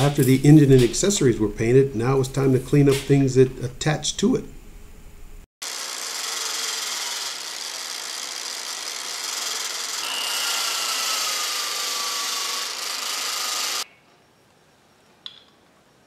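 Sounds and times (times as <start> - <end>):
angle grinder grinding metal: 5.6 - 13.9.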